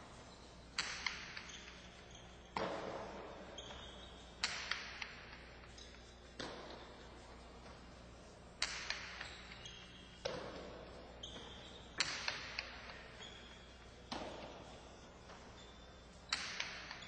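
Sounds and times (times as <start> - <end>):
hard ball cracking against walls: 0.8 - 1.8, 4.4 - 7.0, 8.6 - 9.6, 10.2 - 15.4, 16.2 - 17.0.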